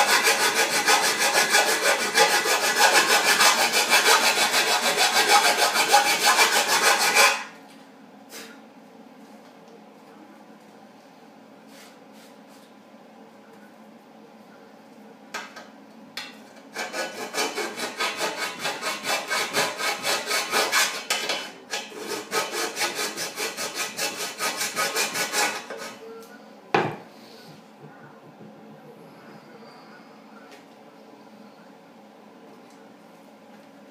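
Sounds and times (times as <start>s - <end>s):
hand file rasping on metal pipe: 0.0s - 7.5s, 16.8s - 26.0s.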